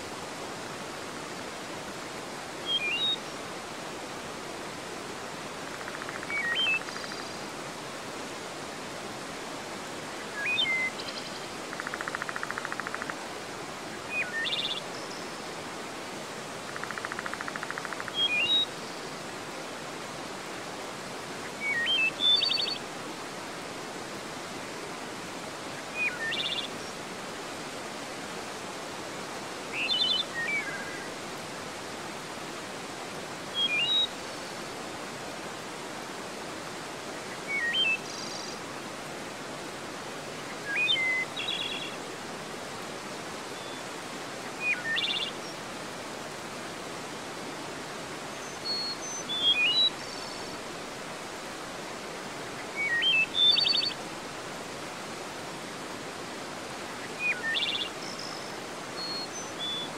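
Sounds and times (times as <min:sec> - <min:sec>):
river water rushing over weir: 0:00.0 - 0:59.9
songbird singing buzzy trill: 0:02.6 - 0:03.2, 0:14.1 - 0:15.3, 0:21.6 - 0:22.8, 0:26.0 - 0:26.9, 0:40.6 - 0:42.0, 0:44.6 - 0:45.6, 0:52.6 - 0:54.0, 0:57.2 - 0:59.9.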